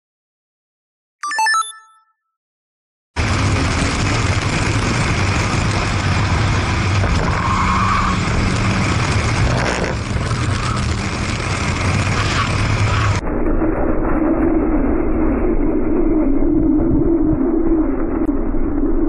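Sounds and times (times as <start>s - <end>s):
car engine running: 3.2s - 13.2s
wind and road noise: 3.2s - 13.2s
tyre squeal: 7.1s - 8.6s.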